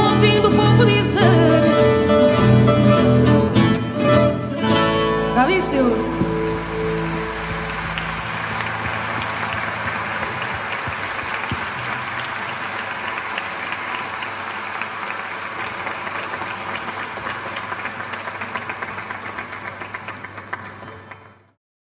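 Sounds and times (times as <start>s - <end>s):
audience applauding: 5.4s - 21.6s.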